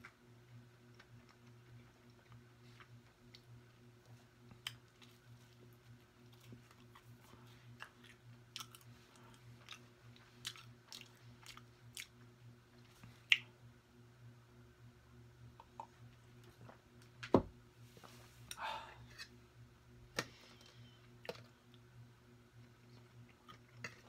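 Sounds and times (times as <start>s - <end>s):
person chewing food: 0.0s - 13.6s, 22.6s - 24.0s.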